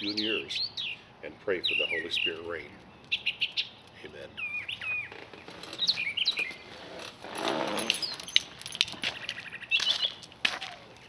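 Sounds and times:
small birds chirping: 0.0s - 7.0s, 7.8s - 11.0s
rustling: 5.0s - 11.0s.

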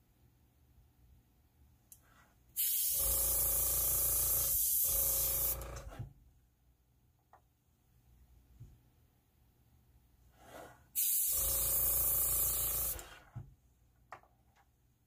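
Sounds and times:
airbrush air hissing: 2.6s - 3.0s, 11.0s - 13.1s
air compressor motor humming: 2.6s - 6.1s, 11.0s - 13.3s.

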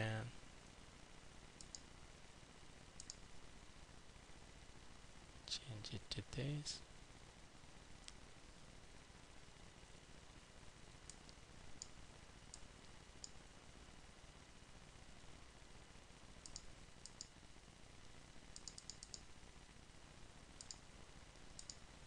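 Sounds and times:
computer mouse clicks: 1.6s - 1.9s, 3.0s - 3.2s, 16.4s - 17.3s, 18.6s - 19.3s, 20.6s - 20.8s, 21.6s - 21.8s.

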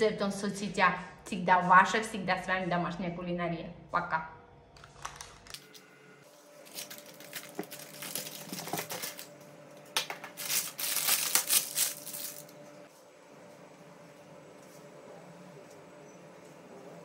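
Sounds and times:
parchment paper crinkling: 6.6s - 9.3s, 10.2s - 12.6s.

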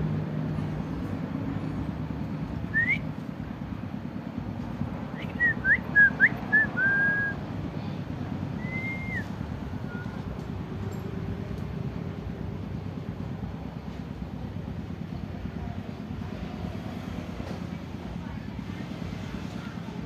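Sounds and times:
steady background noise: 0.0s - 20.0s
short whistled notes: 8.6s - 9.3s.

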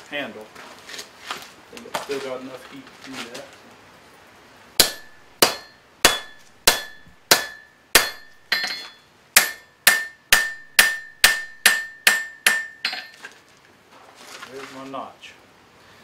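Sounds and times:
hammer striking steel on an anvil: 4.8s - 13.2s.

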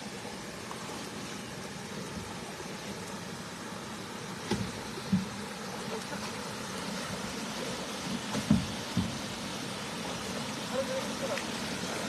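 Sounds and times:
boots wading through water: 4.3s - 12.0s.

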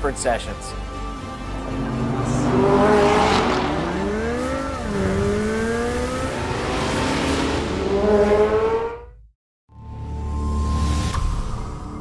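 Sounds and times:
car engine accelerating hard: 0.8s - 9.2s.

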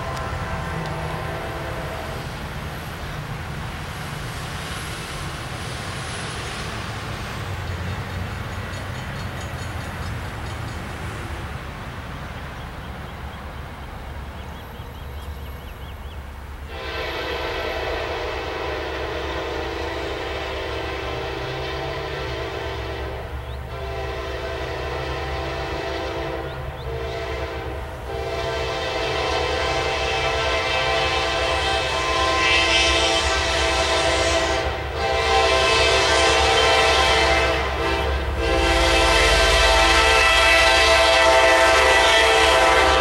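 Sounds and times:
train air horn blast: 0.0s - 2.5s, 16.6s - 43.0s
freight train rumble: 0.0s - 43.0s.

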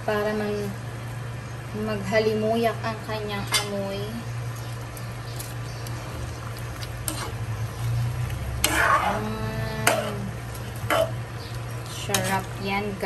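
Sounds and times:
steady low hum: 0.0s - 13.0s
ladle stirring in pan: 4.4s - 12.8s.

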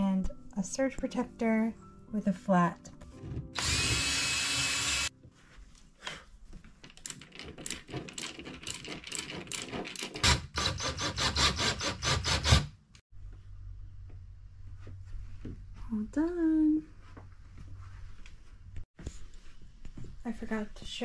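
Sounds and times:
cordless drill drilling into wall: 3.6s - 5.1s
screwdriver clicking and scraping: 6.9s - 12.6s.

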